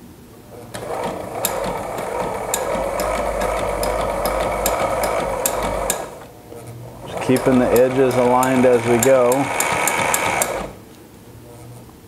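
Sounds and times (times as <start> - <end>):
sewing machine stitching: 0.6 - 10.8
sewing machine clicks: 0.7 - 6.2, 7.0 - 10.8.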